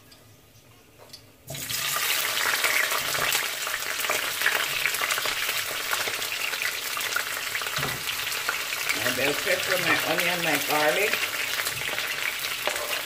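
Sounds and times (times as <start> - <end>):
vegetables sizzling in hot oil: 1.5 - 13.0.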